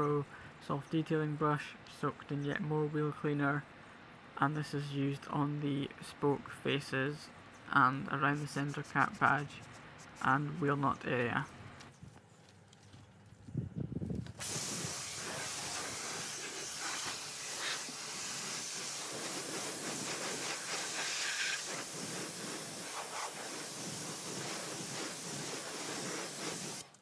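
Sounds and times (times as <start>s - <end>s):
pressure washer spraying water: 14.4s - 27.0s.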